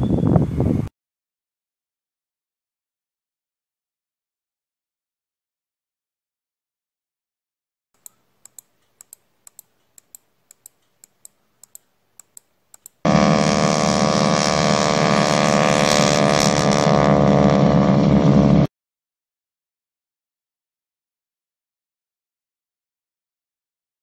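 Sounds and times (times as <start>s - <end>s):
light clicks: 8.0s - 13.0s
loud engine drone: 13.0s - 18.7s.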